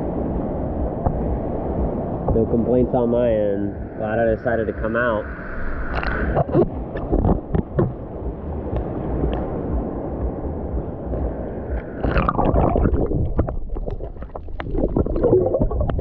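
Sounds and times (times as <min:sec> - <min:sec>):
underwater gurgling: 0:05.3 - 0:16.0
water sloshing: 0:11.8 - 0:16.0.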